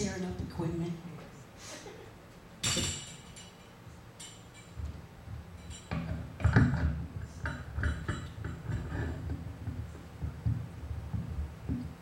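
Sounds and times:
microphone thumps and clicks: 0:09.7 - 0:12.0.

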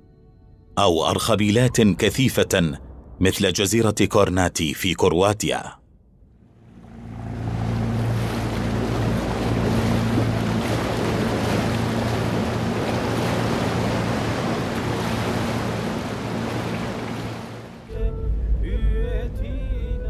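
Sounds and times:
wind: 0:00.8 - 0:17.9
low steady hum: 0:05.8 - 0:20.0
sea surf rushing: 0:06.6 - 0:17.9.

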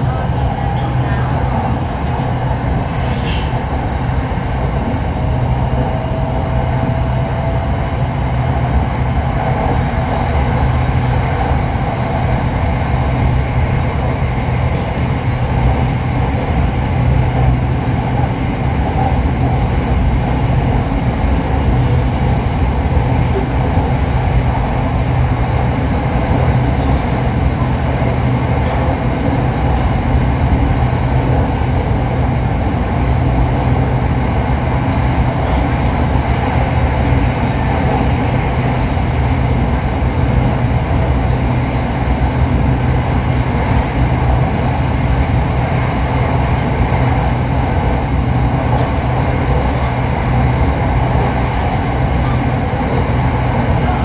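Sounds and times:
train wheels rumbling and humming: 0:00.0 - 0:54.0.

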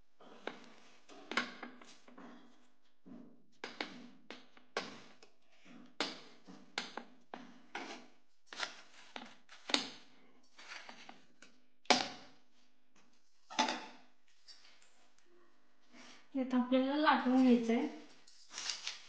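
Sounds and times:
wooden spatula scraping on metal: 0:07.4 - 0:09.7, 0:10.5 - 0:11.3.

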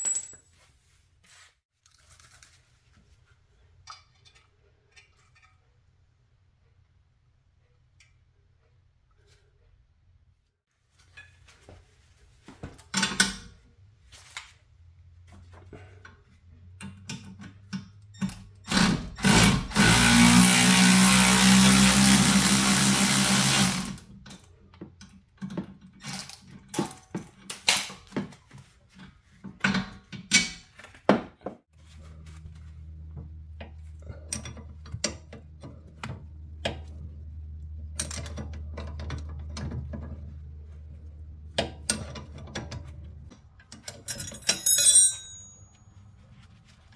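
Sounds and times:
metal clinks: 0:00.0 - 0:00.5, 0:43.8 - 0:46.0
loud power tool running: 0:18.8 - 0:24.0.

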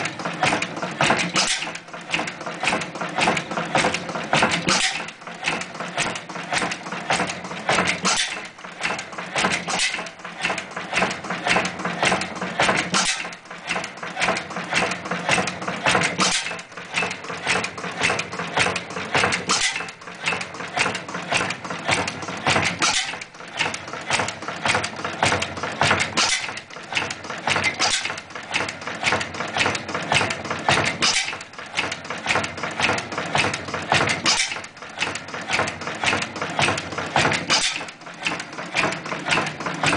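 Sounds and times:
stationary oil engine clattering: 0:00.0 - 0:39.9.

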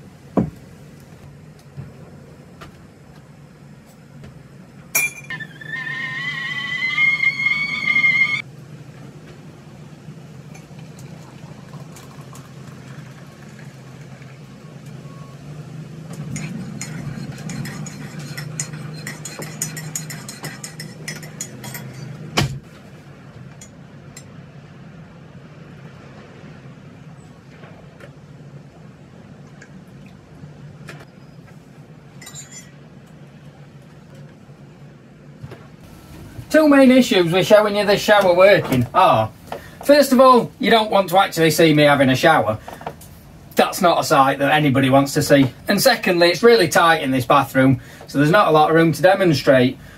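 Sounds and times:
steady low hum: 0:00.0 - 0:49.9
teaspoon clinking in ceramic mug: 0:16.4 - 0:22.1.

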